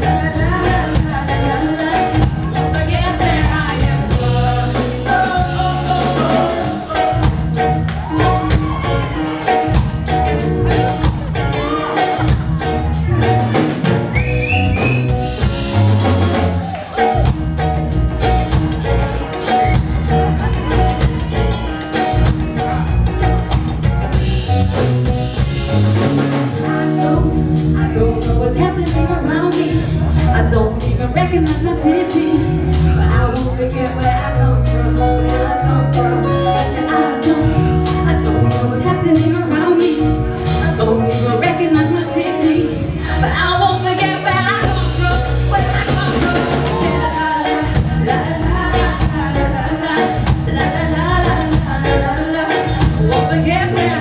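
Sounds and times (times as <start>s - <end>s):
singers on lead vocals: 0.0s - 17.4s, 26.2s - 54.0s
drum kit beat: 0.0s - 54.0s
live band playing: 0.0s - 54.0s.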